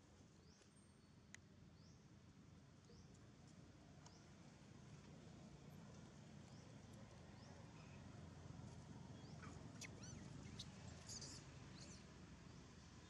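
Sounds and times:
high-pitched chirps and squeaks: 0:09.8 - 0:11.9.

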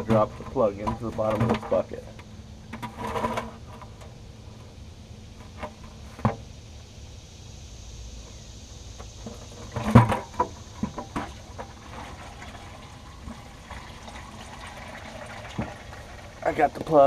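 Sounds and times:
oil pouring into plastic bucket: 0:10.9 - 0:17.0.

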